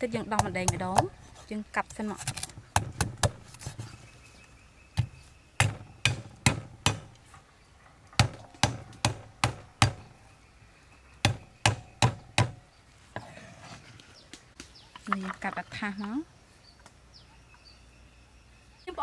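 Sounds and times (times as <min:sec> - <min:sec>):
cleaver chopping on wooden block: 0:02.3 - 0:03.7, 0:05.0 - 0:07.2, 0:08.2 - 0:10.1, 0:11.2 - 0:12.6.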